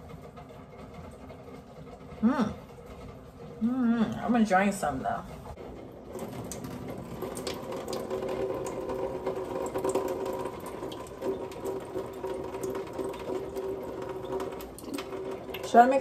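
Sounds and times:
faucet running into sink: 6.1s - 16.0s.

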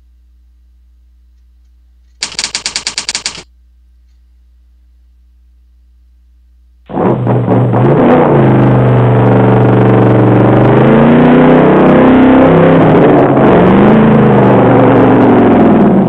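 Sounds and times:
engine revving: 6.9s - 16.0s.

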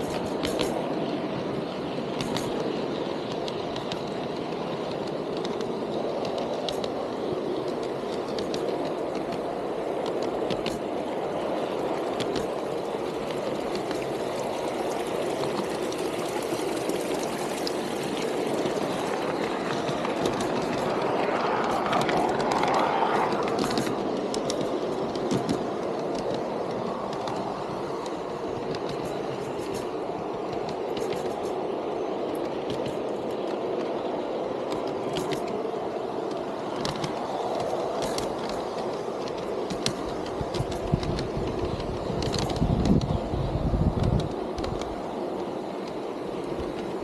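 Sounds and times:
model train wheels rolling hum: 0.0s - 47.0s.

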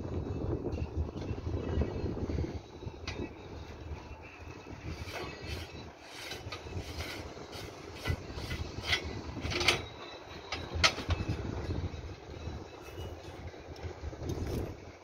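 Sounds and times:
steady low rumble: 0.0s - 15.0s
metallic clinks and scrapes: 4.8s - 11.4s.

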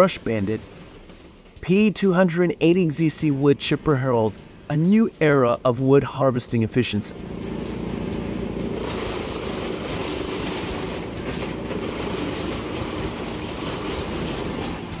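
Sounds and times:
wood chipper engine drone: 0.0s - 1.7s, 2.5s - 5.8s, 6.6s - 15.0s
wood crunching in chipper: 7.2s - 15.0s.

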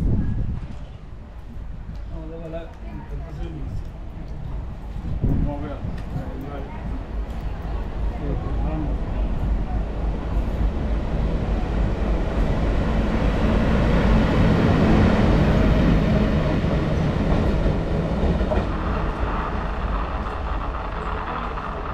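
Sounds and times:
diesel locomotive passing: 2.7s - 21.9s.

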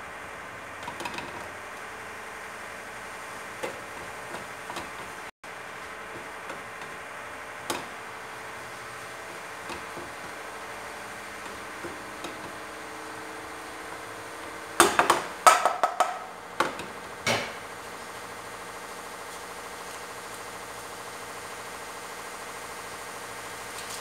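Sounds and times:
spatula stirring food in pan: 0.8s - 14.8s
knocks against pan: 14.8s - 17.6s
sharp knocks and clatter: 14.8s - 17.6s.

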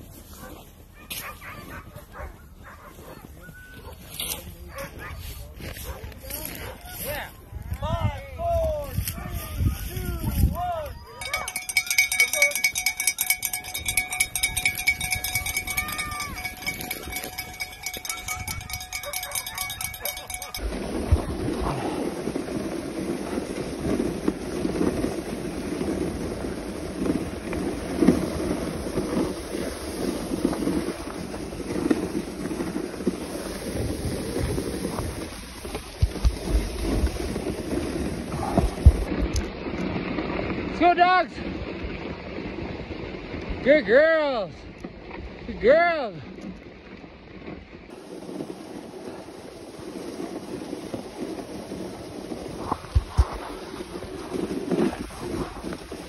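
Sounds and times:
sled runners scraping over snow: 0.0s - 56.0s
wind buffeting microphone: 5.2s - 40.8s, 46.3s - 56.0s.

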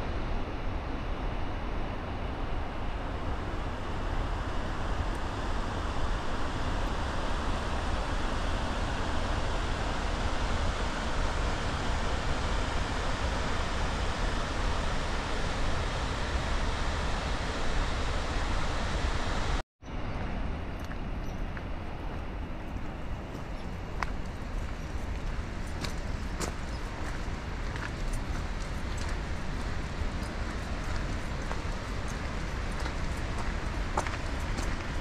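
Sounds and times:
river rushing over rapids: 23.2s - 35.0s.

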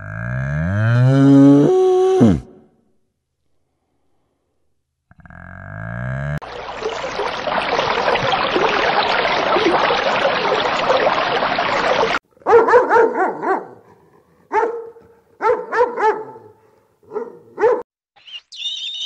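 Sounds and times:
dog barking: 12.4s - 17.9s.

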